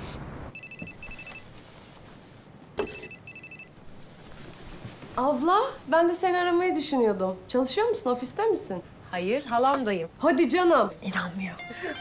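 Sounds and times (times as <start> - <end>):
telephone ringing: 0.5 - 1.5, 2.8 - 3.8.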